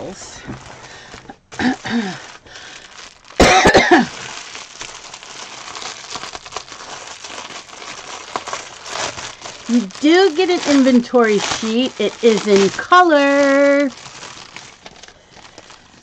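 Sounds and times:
cellophane crinkling: 0.0 - 16.0
woman coughing: 1.6 - 2.2, 3.4 - 4.2.

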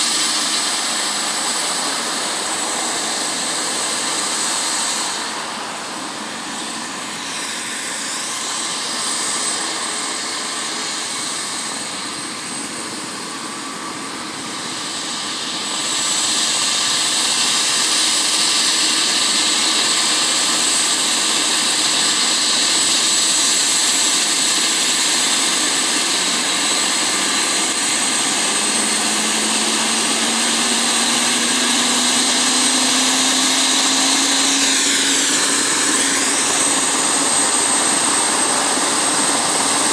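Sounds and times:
helicopter turbine whine and rotor: 0.0 - 39.9
low tone rising in pitch: 28.2 - 37.3.

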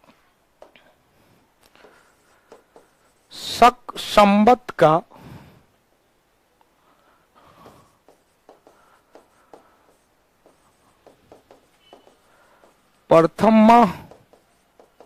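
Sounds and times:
pen tapping on touchscreen: 0.6 - 0.9, 1.6 - 3.2, 7.6 - 15.0.

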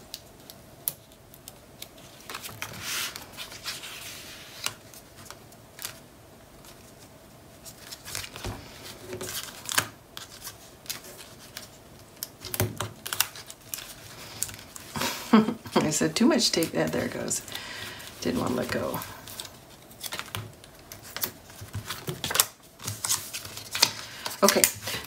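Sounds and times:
paper rubbing and sliding: 2.2 - 4.8.

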